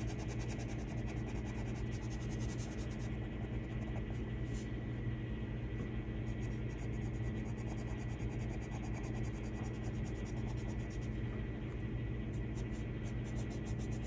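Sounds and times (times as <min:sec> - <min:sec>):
colored pencil scratching on paper: 0:00.0 - 0:04.6, 0:06.3 - 0:11.1, 0:12.3 - 0:14.0
steady low hum: 0:00.0 - 0:14.0.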